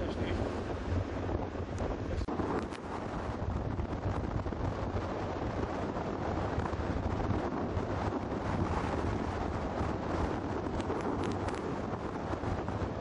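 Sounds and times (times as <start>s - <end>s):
wind on microphone: 0.0s - 13.0s.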